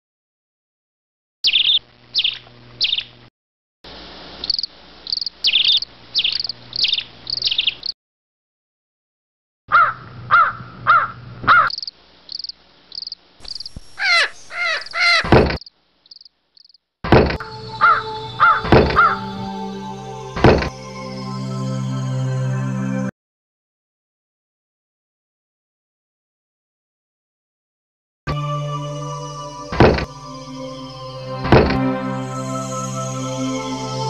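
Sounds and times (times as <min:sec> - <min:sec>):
birds calling with downward calls: 0:01.4 - 0:03.2, 0:04.4 - 0:08.0, 0:09.8 - 0:15.4, 0:17.7 - 0:19.5.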